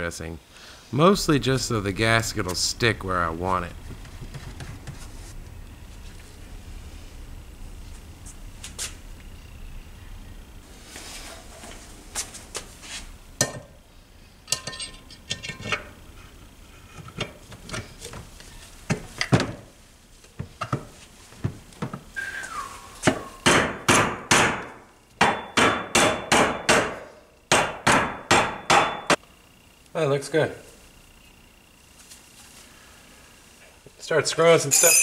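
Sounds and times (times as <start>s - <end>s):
metal parts clinking: 14.5s - 15.8s, 34.7s - 35.0s.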